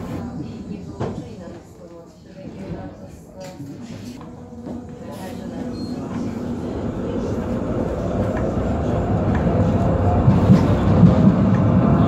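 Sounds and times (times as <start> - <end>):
tram rumbling along: 4.2 - 12.0.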